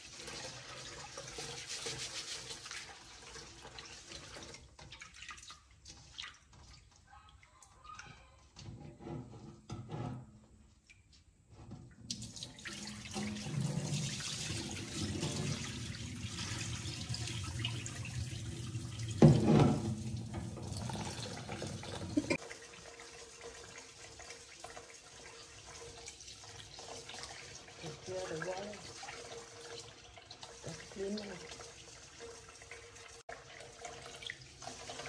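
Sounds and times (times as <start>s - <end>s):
tap water rushing: 11.6s - 35.0s.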